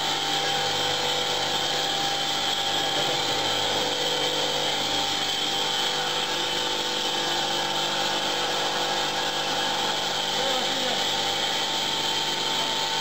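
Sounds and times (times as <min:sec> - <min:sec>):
press machine running: 0:00.0 - 0:13.0.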